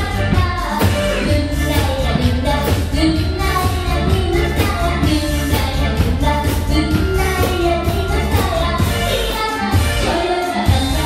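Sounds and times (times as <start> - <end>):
band accompaniment with drum beat: 0.0 - 11.0
girl singing into a microphone: 0.0 - 11.0.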